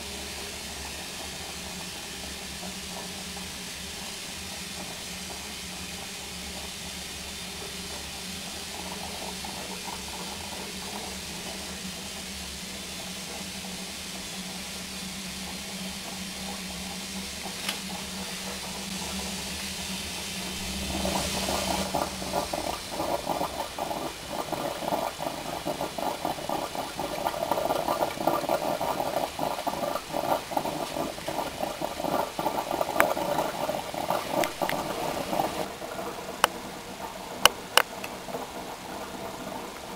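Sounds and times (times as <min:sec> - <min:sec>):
steam locomotive hissing: 0:00.0 - 0:39.9
low hum: 0:18.6 - 0:39.6.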